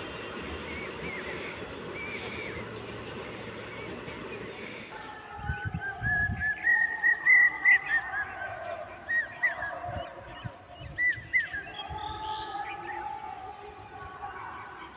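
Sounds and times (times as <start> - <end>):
birds honking: 0.0 - 5.0.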